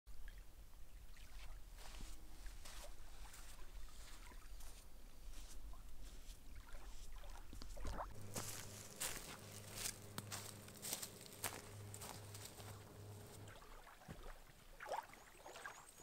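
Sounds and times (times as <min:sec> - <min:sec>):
small waves lapping: 0:00.2 - 0:16.0
footsteps on leafy forest floor: 0:01.8 - 0:13.6
low steady rumble: 0:07.3 - 0:14.7.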